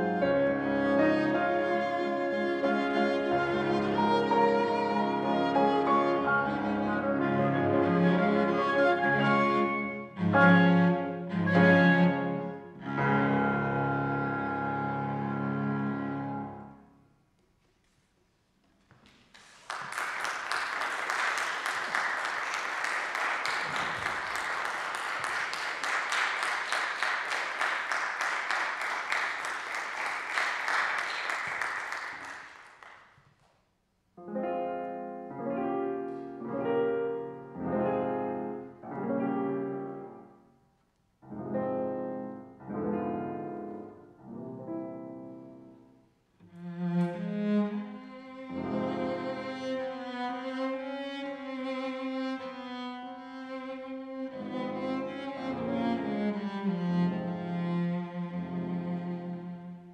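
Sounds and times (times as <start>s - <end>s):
piano playing slow chords: 0.0s - 16.8s, 34.2s - 40.4s, 41.2s - 45.9s
audience applauding: 19.1s - 33.1s.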